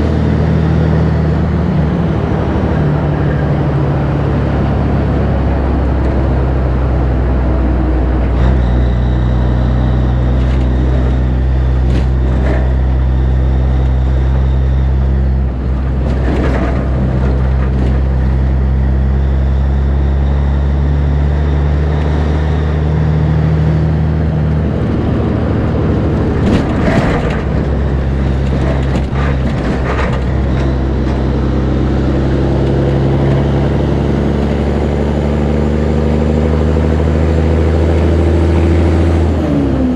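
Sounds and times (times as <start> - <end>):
diesel truck engine running: 0.0 - 39.9.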